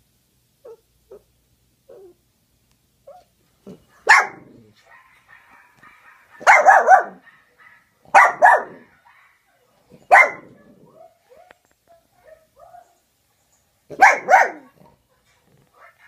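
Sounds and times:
small dog barking: 0:00.6 - 0:01.3, 0:03.0 - 0:13.0, 0:13.9 - 0:16.0.

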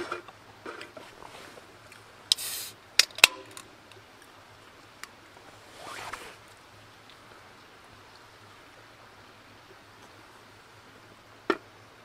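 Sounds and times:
gas hissing from can: 0:02.3 - 0:02.8
can ring pull crack: 0:03.0 - 0:03.7.

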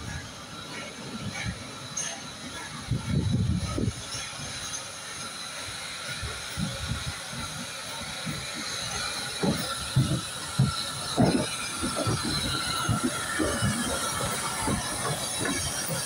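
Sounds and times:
steam hissing: 0:00.0 - 0:16.0
low locomotive thumps: 0:06.4 - 0:16.0.

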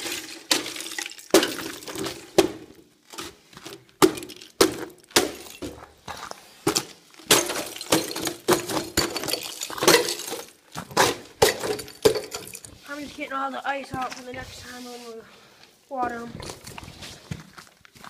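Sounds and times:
ice cracking and clinking on metal: 0:00.0 - 0:02.4, 0:03.1 - 0:12.8.

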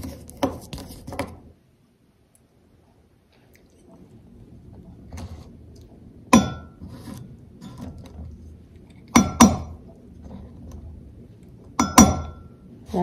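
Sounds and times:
quiet handling sounds: 0:00.0 - 0:01.6, 0:09.8 - 0:11.8
spoon clinking against ceramic bowl: 0:11.8 - 0:12.5.

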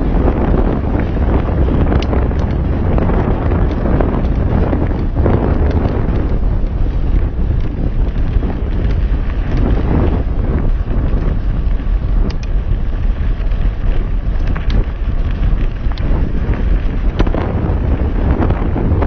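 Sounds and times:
wind buffeting microphone: 0:00.0 - 0:19.0
sharp clicks: 0:12.2 - 0:12.6.

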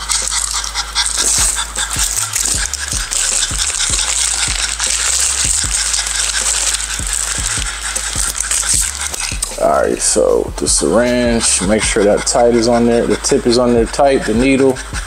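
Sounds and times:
plastic wrapper crinkling: 0:00.0 - 0:09.7
background music with beat: 0:00.0 - 0:15.0
dog panting: 0:00.0 - 0:15.0.

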